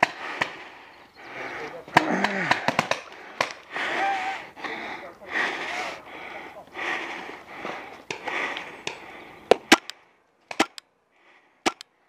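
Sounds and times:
paintball markers firing: 1.9 - 3.7, 8.0 - 10.9, 11.6 - 11.9.

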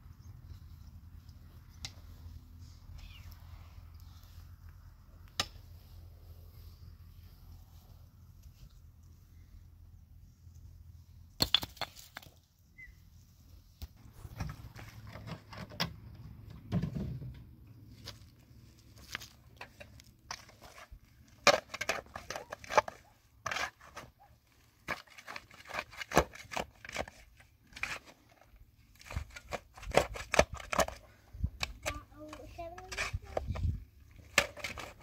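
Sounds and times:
sharp clacks of stones: 11.4 - 12.4
stones knocking and scraping: 11.4 - 12.4, 18.0 - 24.2, 24.8 - 31.0.

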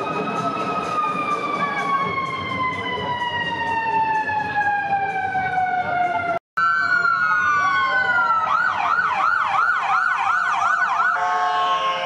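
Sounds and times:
emergency siren wail and yelp: 0.0 - 12.0
horn blast: 11.1 - 12.0.

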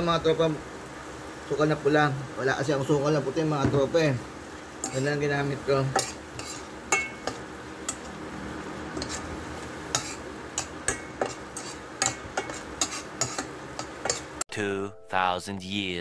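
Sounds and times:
steady low hiss: 0.0 - 7.9
metal spoon scraping a pan: 4.8 - 8.1, 8.8 - 14.4.

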